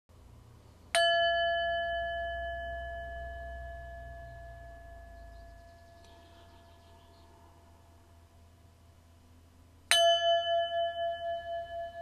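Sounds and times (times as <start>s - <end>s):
metal bell ringing: 1.0s - 6.4s, 9.9s - 12.0s.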